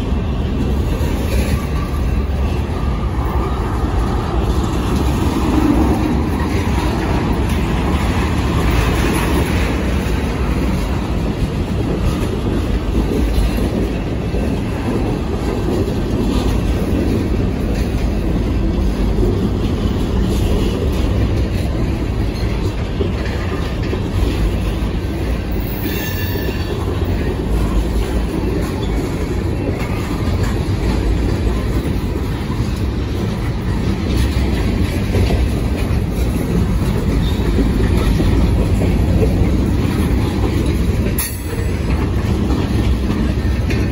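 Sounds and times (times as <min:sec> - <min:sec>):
train wheels rumbling on rails: 0:00.0 - 0:43.9
wheel squeal: 0:25.5 - 0:26.9.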